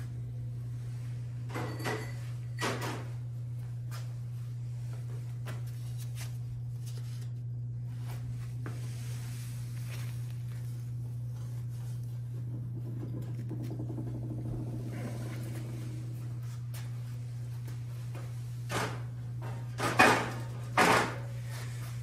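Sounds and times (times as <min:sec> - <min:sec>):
steady low hum: 0:00.0 - 0:22.0
kiln shelf scraping: 0:11.2 - 0:21.9.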